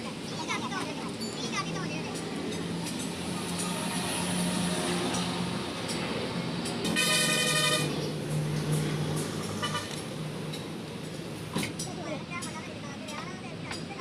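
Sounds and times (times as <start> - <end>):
road traffic: 0.0 - 14.0
vehicle horn honking: 6.9 - 8.0, 9.6 - 10.0.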